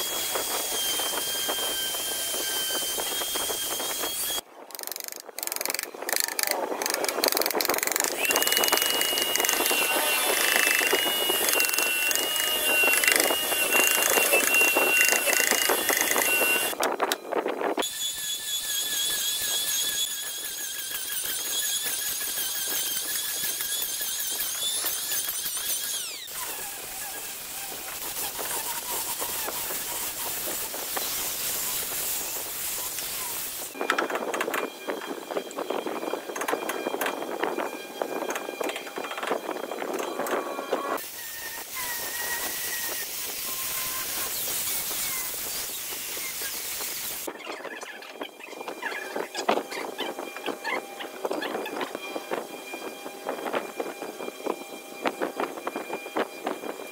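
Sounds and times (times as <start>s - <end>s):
electric planer motor whine: 8.2s - 16.8s, 49.4s - 56.9s.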